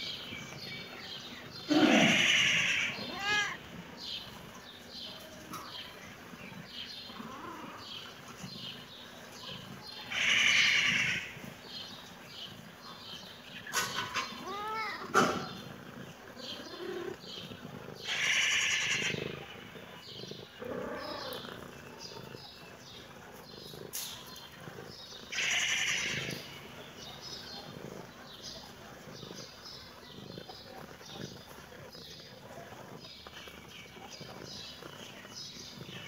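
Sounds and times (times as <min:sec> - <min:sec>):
cat meowing: 0:02.0 - 0:03.6, 0:14.4 - 0:15.1.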